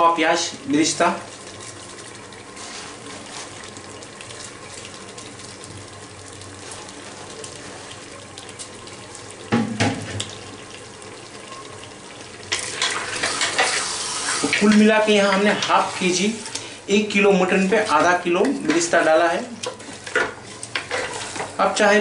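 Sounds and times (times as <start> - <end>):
meat and onions sizzling in oil: 0.0 - 22.0
thump: 9.5 - 10.2
spatula scraping a pot: 18.6 - 21.6.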